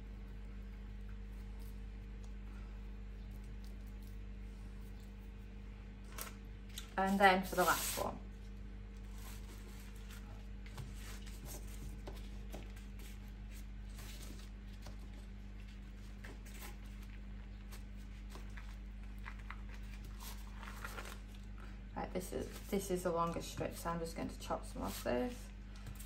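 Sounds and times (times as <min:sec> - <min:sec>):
low hum: 0:00.0 - 0:26.0
pastry rustling and tapping: 0:08.4 - 0:21.3.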